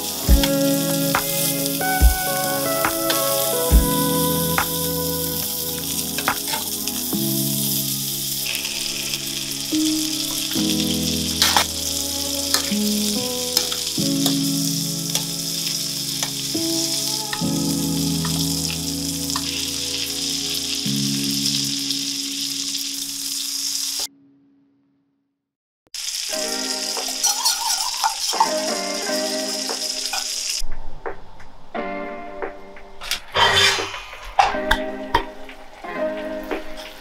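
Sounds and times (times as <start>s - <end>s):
butter sizzling in a frying pan: 0.0s - 24.1s, 26.0s - 30.6s.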